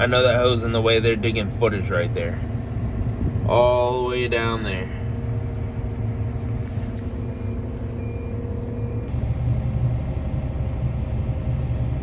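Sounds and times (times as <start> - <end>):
diesel engine drone with whine: 0.0 - 12.0
faint short beeps: 7.2 - 9.1.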